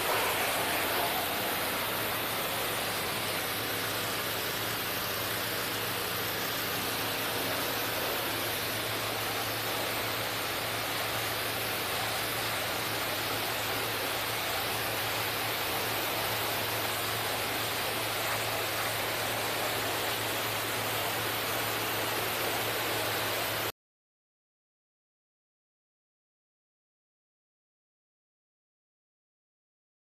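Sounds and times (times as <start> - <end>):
pressure washer spraying water: 0.0 - 23.7.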